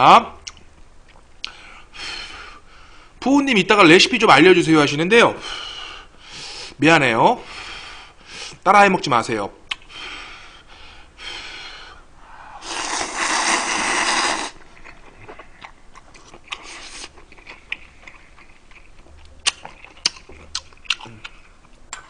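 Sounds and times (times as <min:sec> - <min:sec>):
chewing with small clicks: 0:00.4 - 0:01.6, 0:14.8 - 0:22.0
person slurping noodles: 0:12.5 - 0:14.6.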